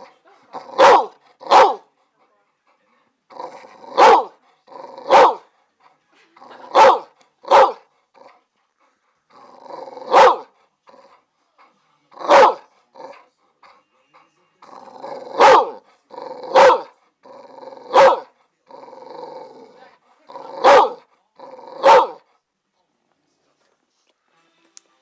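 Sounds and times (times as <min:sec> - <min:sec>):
dog barking: 0:00.0 - 0:01.9, 0:03.8 - 0:04.4, 0:05.0 - 0:05.5, 0:06.6 - 0:07.9, 0:10.0 - 0:10.6, 0:12.2 - 0:13.2, 0:15.1 - 0:15.8, 0:16.4 - 0:17.0, 0:17.8 - 0:18.3, 0:20.3 - 0:21.1, 0:21.7 - 0:22.3
dog growling: 0:03.3 - 0:05.4, 0:09.3 - 0:11.2, 0:12.1 - 0:13.2, 0:14.6 - 0:22.2.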